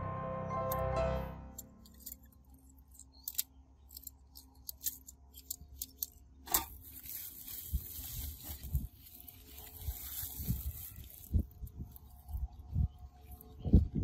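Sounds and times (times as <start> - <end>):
clicks of small parts handled: 1.6 - 7.0
plastic sack crinkling and rustling: 6.5 - 12.3.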